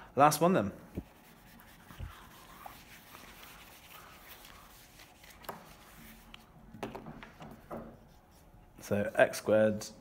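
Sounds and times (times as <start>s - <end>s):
eraser rubbing whiteboard: 1.0s - 6.5s.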